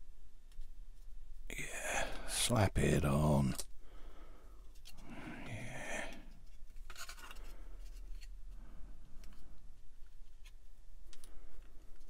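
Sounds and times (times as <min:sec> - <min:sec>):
plastic parts scraping and clicking: 0:06.6 - 0:08.4.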